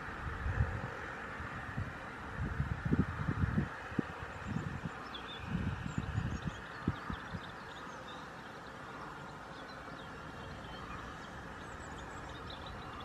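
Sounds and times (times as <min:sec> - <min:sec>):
faint songbird chirps: 0:04.1 - 0:13.0.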